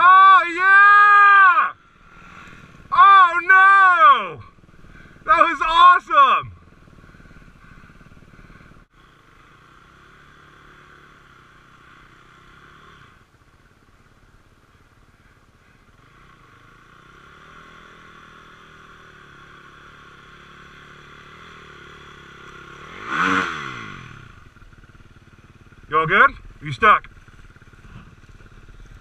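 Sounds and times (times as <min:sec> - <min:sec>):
dirt bike engines idling: 0:00.0 - 0:29.0.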